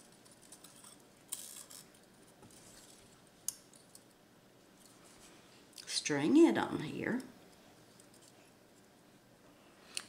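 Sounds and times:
beads clicking and rustling: 0.0s - 4.1s.

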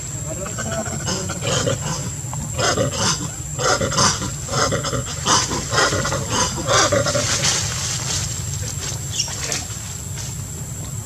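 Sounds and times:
monkeys screeching: 0.3s - 7.7s, 8.8s - 9.8s.

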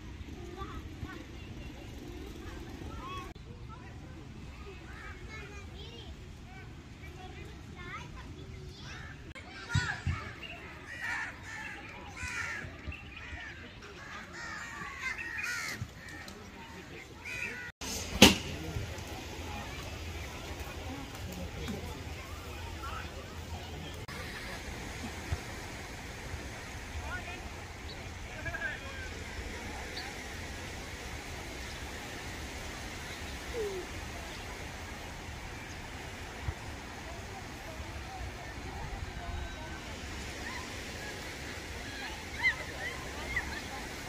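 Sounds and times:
distant crowd: 0.0s - 44.0s
crows cawing: 14.4s - 15.9s
small waves hissing: 17.4s - 44.0s.

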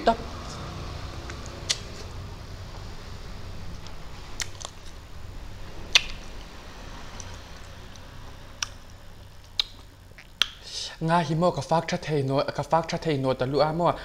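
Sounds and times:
low steady hum: 0.0s - 14.0s
person chewing: 1.2s - 2.1s, 3.7s - 5.0s, 5.9s - 6.5s, 7.1s - 10.6s
mouth clicks: 5.9s - 6.2s, 9.4s - 10.7s.

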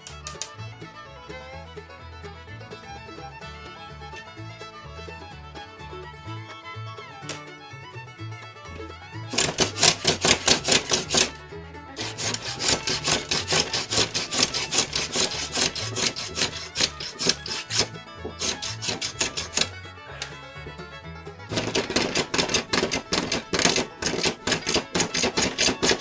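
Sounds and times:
hand plane rasping on wood: 0.0s - 0.5s, 9.3s - 11.4s, 12.0s - 20.4s, 21.5s - 26.0s
background music: 0.0s - 26.0s.

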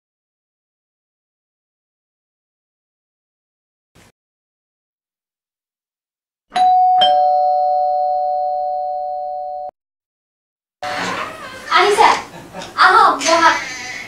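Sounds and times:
two-note doorbell chime: 6.5s - 9.7s.

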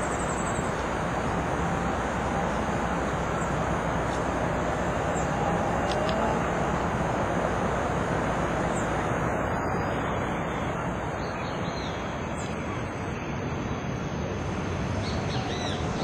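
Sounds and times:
vehicle rumble: 0.0s - 16.0s
small birds chirping: 8.6s - 13.9s.

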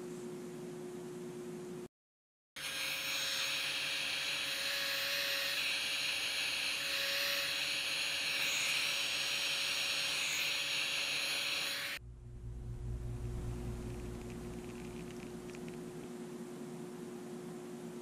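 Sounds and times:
heat gun blowing hot air: 2.6s - 12.0s.

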